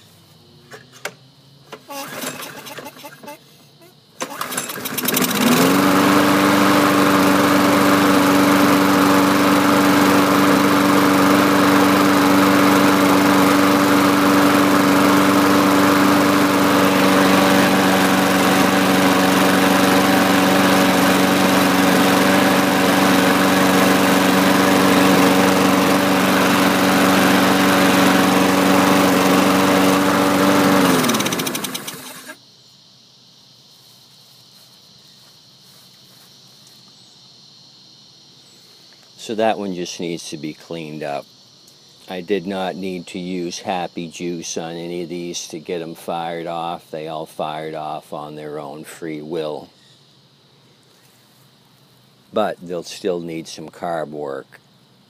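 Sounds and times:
lawn mower engine running: 1.7 - 3.4, 4.2 - 32.4.

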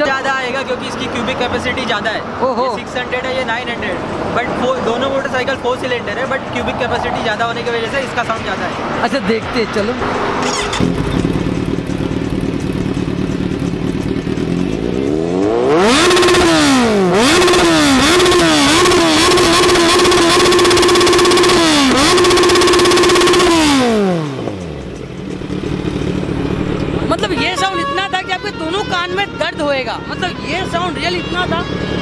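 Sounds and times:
motorcycle engine idling and revving: 0.0 - 32.0.

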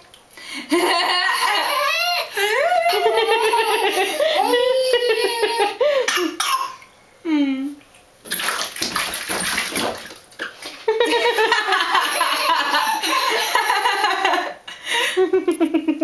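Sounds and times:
toddler laughing: 0.8 - 5.8
bathwater splashing: 8.2 - 13.4.

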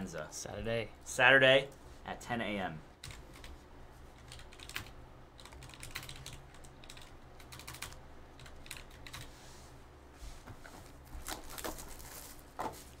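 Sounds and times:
computer keyboard typing: 3.0 - 3.5, 4.2 - 9.3.

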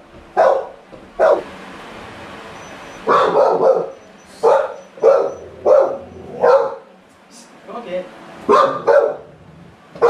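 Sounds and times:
dog barking: 0.4 - 1.5, 3.0 - 6.9, 8.5 - 9.3.

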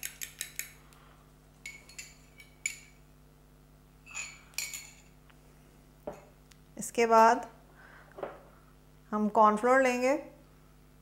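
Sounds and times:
metal spoon clinking on glass bowl: 1.6 - 3.0, 4.1 - 5.2.

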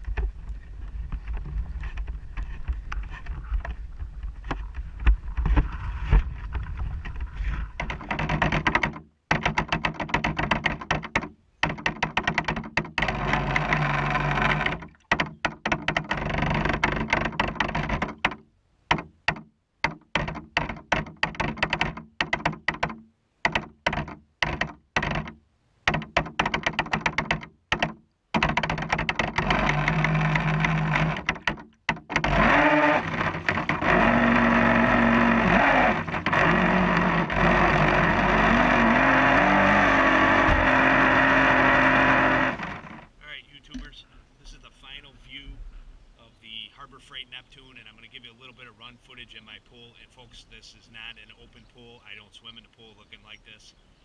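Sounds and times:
wind on microphone: 0.0 - 8.2
rc boat motor bursts: 13.0 - 14.8, 29.2 - 31.4, 32.2 - 43.2.

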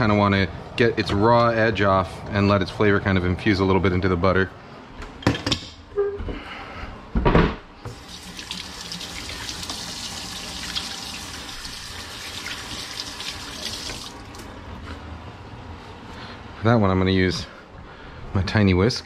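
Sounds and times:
faucet running into metal sink: 7.9 - 14.4.

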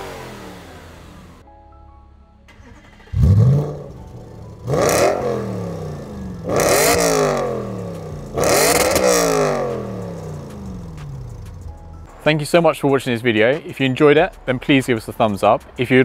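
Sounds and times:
car engine free-revving: 0.0 - 1.4, 2.5 - 11.9.

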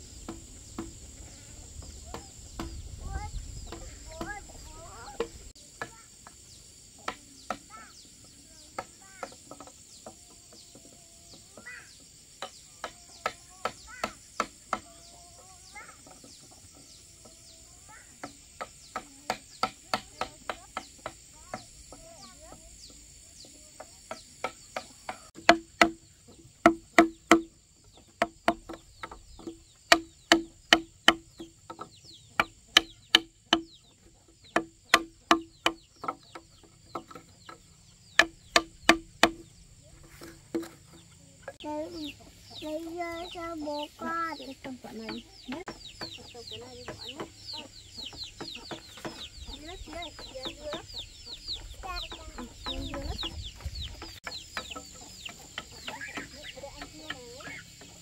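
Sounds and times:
hammer knocking on chisel: 24.1 - 33.8, 34.4 - 39.5.

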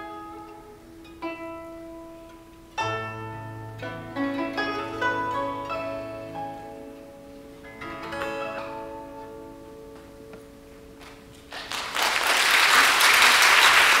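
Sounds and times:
acoustic guitar: 0.0 - 11.5
plucked zither notes: 0.0 - 11.5
audience applause: 11.5 - 14.0.

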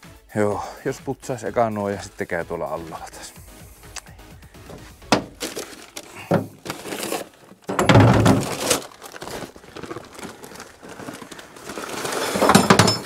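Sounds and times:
plastic sack rustling: 4.4 - 13.0.

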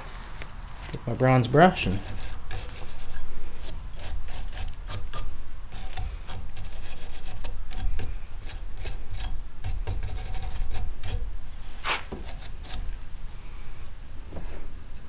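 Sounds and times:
brush scrubbing steel: 1.3 - 12.9.

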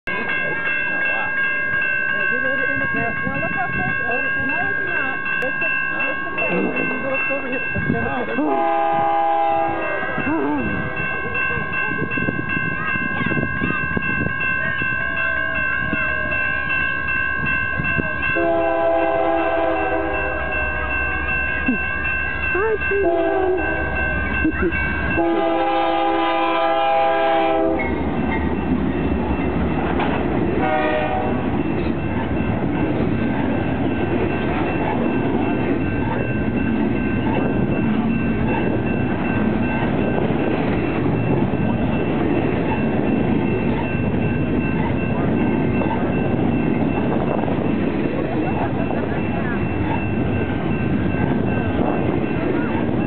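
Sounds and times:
train rumble and wheel clatter: 0.0 - 53.0
steady high tone: 0.1 - 53.0
locomotive air horn blasts: 8.5 - 9.9, 18.4 - 20.9, 23.0 - 24.0, 25.2 - 27.8, 30.6 - 31.5.

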